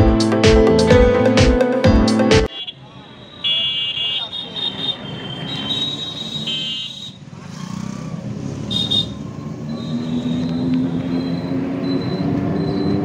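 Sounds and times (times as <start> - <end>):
auto-rickshaw engine running: 5.1 - 13.0.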